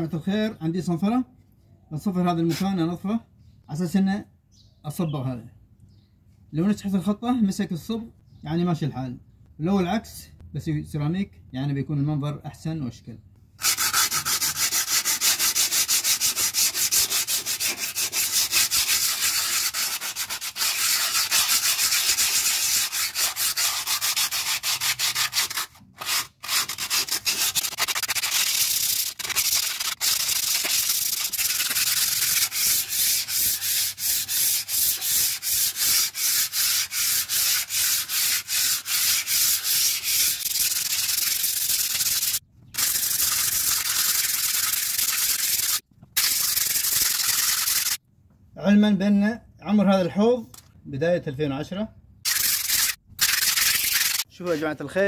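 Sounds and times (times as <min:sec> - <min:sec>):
sandpaper rubbing on concrete: 0:02.4 - 0:02.8, 0:13.6 - 0:48.0, 0:52.3 - 0:54.7.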